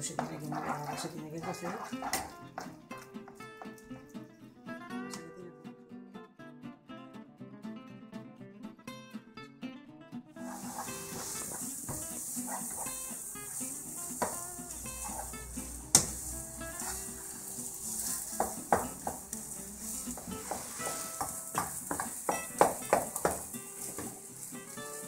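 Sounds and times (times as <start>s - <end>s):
dough sizzling in a pan: 0.0s - 3.9s, 10.4s - 25.0s
spoon scraping and knocking pan: 0.0s - 3.9s, 10.4s - 25.0s.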